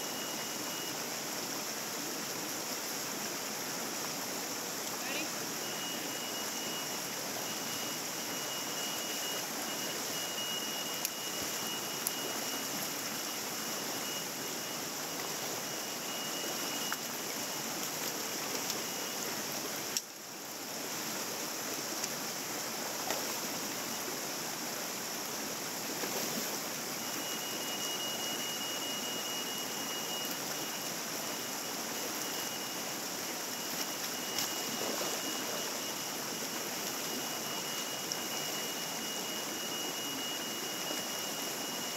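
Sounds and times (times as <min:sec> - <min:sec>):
thin high tone: 0:00.0 - 0:01.1, 0:05.0 - 0:19.4, 0:26.8 - 0:41.9
stream rushing over rocks: 0:00.0 - 0:41.9.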